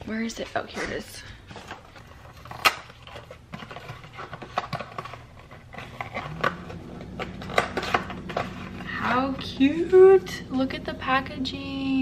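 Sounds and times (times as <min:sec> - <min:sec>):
cardboard box rustling: 0:00.4 - 0:09.4.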